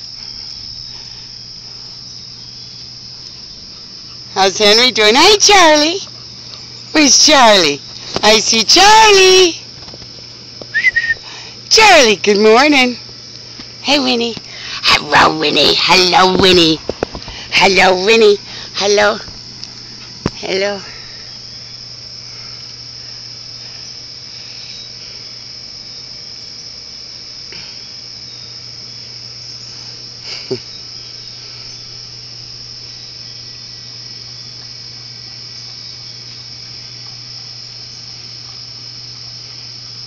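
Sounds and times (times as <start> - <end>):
insects chorus: 0.0 - 40.0
low steady hum: 0.0 - 40.0.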